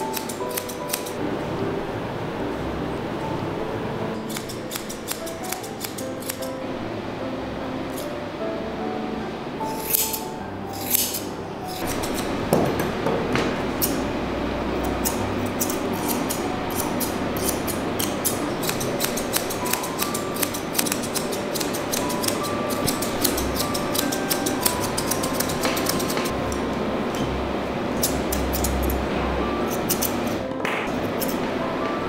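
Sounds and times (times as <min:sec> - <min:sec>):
shears snipping hair: 0:00.0 - 0:01.2, 0:04.2 - 0:06.6, 0:09.7 - 0:12.4, 0:13.7 - 0:14.0, 0:14.8 - 0:26.6, 0:27.9 - 0:29.0, 0:29.7 - 0:31.6.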